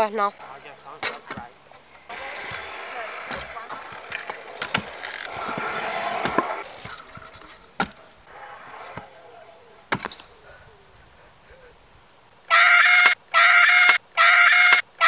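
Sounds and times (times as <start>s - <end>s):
scooter wheels rolling on concrete: 0.0s - 11.6s
scooter clacking on concrete: 0.2s - 10.3s.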